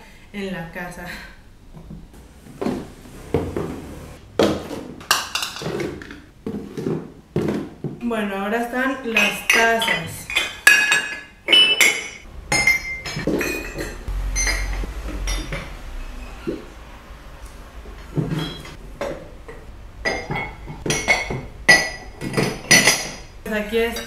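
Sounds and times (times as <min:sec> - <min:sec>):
ceramic mugs clinking: 0:09.2 - 0:16.6, 0:18.1 - 0:24.0.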